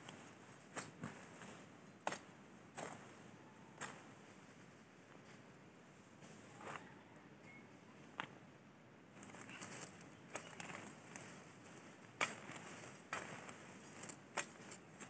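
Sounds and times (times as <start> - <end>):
grass rustling: 9.1 - 15.0
sickle cutting grass: 9.2 - 15.0.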